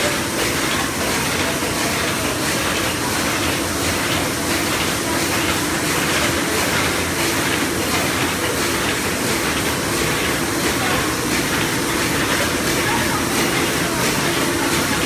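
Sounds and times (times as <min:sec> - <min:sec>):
die-cutting machine running: 0:00.0 - 0:15.0.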